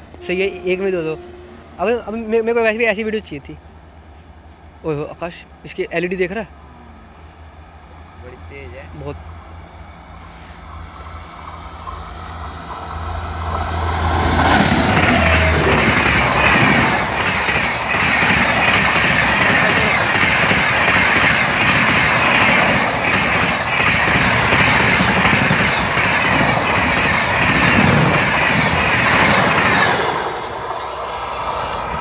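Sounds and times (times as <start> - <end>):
train coaches rushing past: 8.2 - 32.0
wheels clattering over rails: 11.5 - 32.0.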